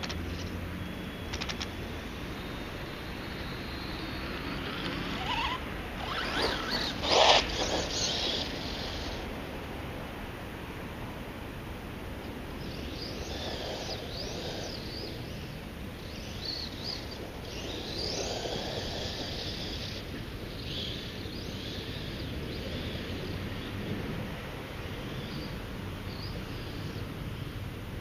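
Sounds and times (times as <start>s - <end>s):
rc car motor whine: 0.0s - 9.5s, 12.6s - 23.1s.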